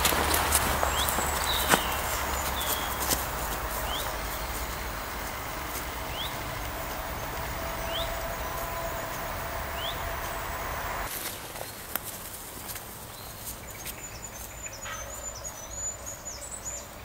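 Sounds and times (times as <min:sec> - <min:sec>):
bird rising call: 0:00.0 - 0:11.1.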